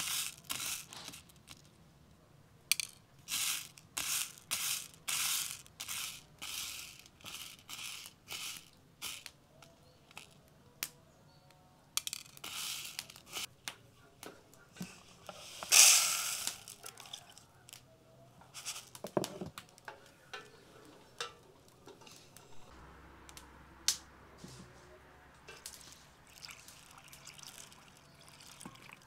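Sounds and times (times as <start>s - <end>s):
peas rushing into wooden bowl: 2.7s - 9.4s, 12.0s - 13.5s, 15.2s - 17.8s, 18.5s - 19.9s, 25.5s - 29.0s
dried peas clicking in plastic bowl: 12.0s - 22.5s.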